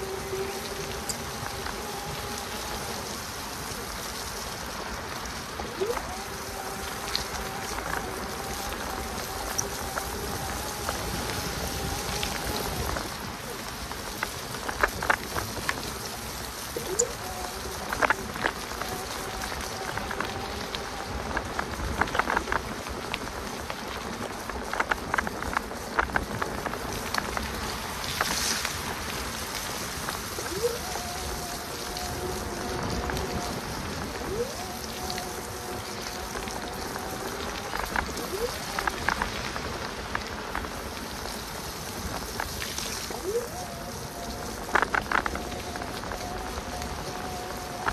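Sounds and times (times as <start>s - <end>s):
electric bike motor whirring: 0.0s - 27.6s
rain: 0.0s - 47.9s
small ticks: 0.0s - 47.9s
tyres on wet path: 0.0s - 47.9s.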